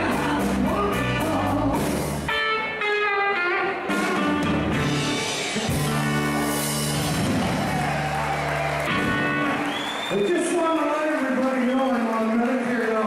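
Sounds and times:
bass guitar: 0.0s - 10.1s
electric guitars: 0.0s - 10.1s.

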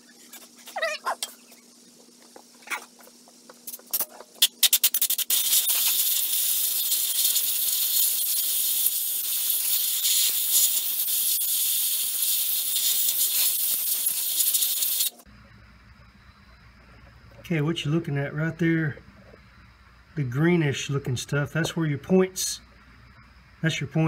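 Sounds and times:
compressed air blow gun hissing: 4.4s - 15.3s.

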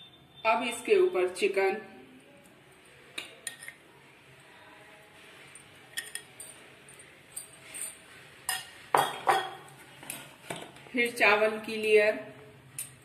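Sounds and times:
ladle clinking against pot: 8.5s - 9.6s.

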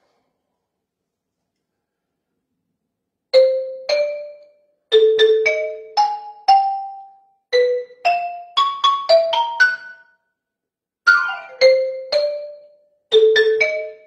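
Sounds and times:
marimba melody: 3.4s - 10.1s, 11.1s - 14.0s.

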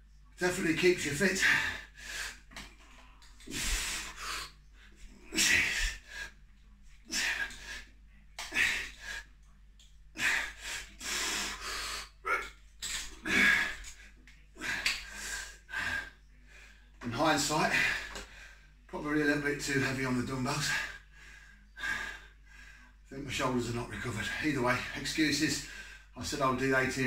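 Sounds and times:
man breathing hard: 1.4s - 6.4s, 7.1s - 9.3s, 10.1s - 12.2s, 13.2s - 14.0s, 14.6s - 16.9s, 20.7s - 23.0s.

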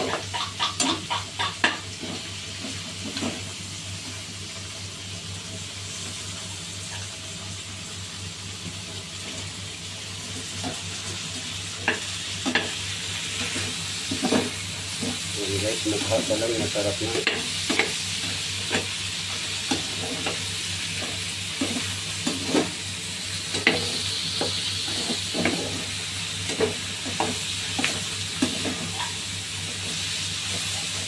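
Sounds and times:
spatula knocking on pan: 0.0s - 1.8s
meat sizzling in sauce: 0.0s - 31.0s.

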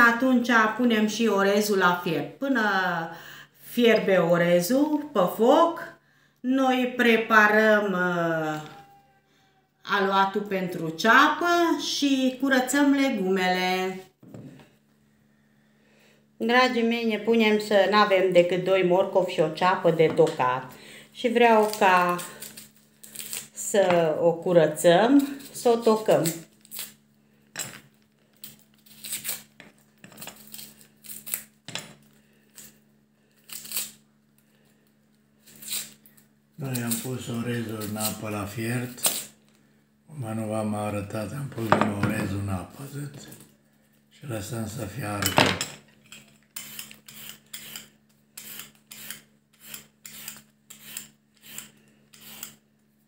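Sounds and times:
onion skin tearing: 21.5s - 23.7s, 26.0s - 27.0s, 28.4s - 29.6s, 30.2s - 31.6s, 32.5s - 34.1s, 35.4s - 39.4s
vegetable peeler rasping: 21.6s - 23.7s, 28.8s - 29.6s, 33.4s - 34.0s, 35.4s - 39.4s, 46.5s - 52.7s.

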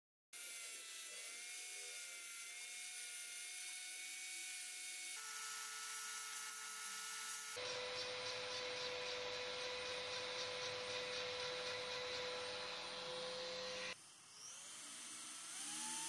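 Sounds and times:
angle grinder whining: 0.4s - 16.0s
wood sanded against disc: 7.3s - 14.0s.

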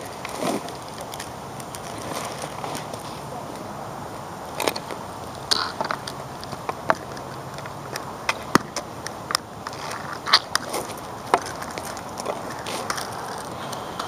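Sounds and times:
hockey sticks clacking on asphalt: 0.0s - 3.7s, 4.5s - 14.0s
steady outdoor hiss: 0.0s - 14.0s.

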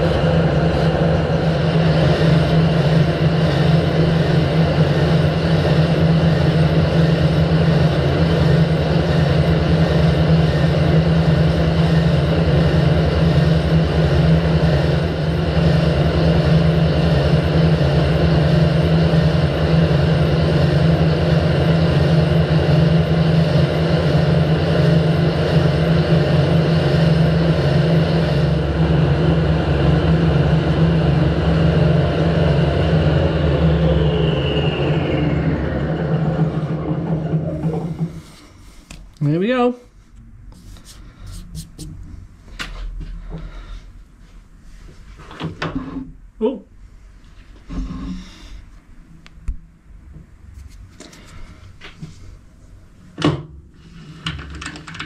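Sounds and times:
lathe spindle winding down: 0.0s - 38.6s
lathe motor humming: 0.0s - 39.0s.

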